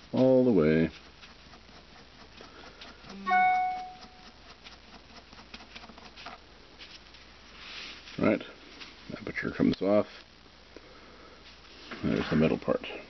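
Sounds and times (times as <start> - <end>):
brief ringing note: 3.2 - 4.1.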